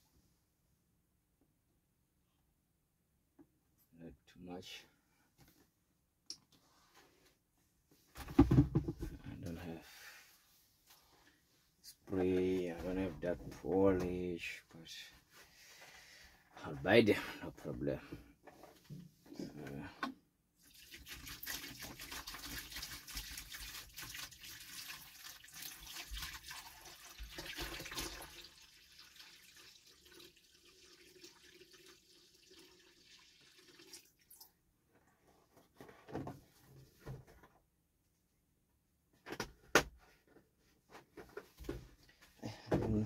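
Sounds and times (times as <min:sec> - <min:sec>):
water pouring into bucket: 0:20.6 - 0:34.5.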